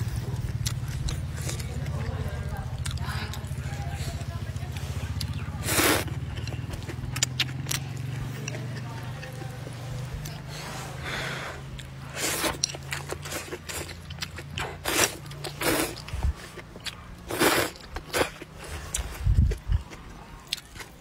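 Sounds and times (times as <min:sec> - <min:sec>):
chewing and mouth clicks: 0:00.0 - 0:10.5, 0:11.6 - 0:21.0
noodles being slurped: 0:05.1 - 0:07.9, 0:10.2 - 0:19.4.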